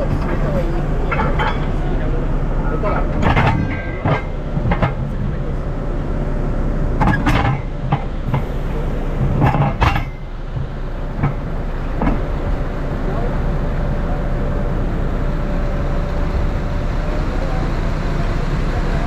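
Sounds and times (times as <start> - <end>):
diesel engine rumbling: 0.0 - 19.0
metallic knocks and clanks: 0.1 - 1.9, 2.8 - 5.3, 7.0 - 8.5, 9.2 - 12.4.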